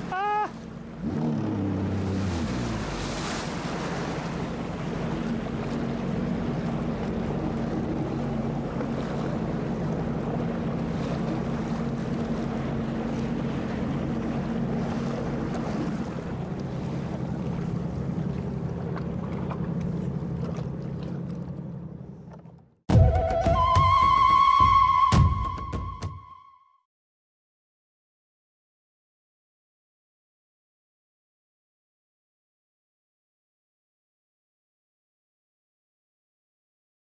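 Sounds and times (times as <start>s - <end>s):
motorboat engine idling: 0.0s - 22.8s
water splashing against hull: 0.0s - 26.0s.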